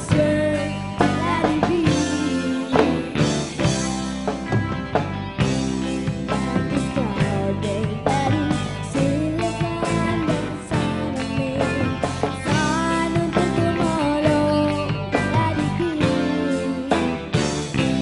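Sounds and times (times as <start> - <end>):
female vocalist singing: 0.0 - 3.2, 6.6 - 17.2
drums: 0.0 - 18.0
guitar: 0.0 - 18.0
keyboard: 0.0 - 18.0.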